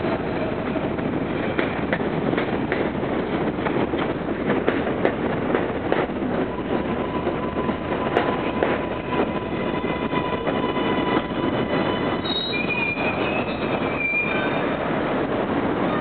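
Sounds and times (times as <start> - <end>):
train wheels rumbling on track: 0.0 - 16.0
high-pitched wheel squeal: 10.2 - 14.8.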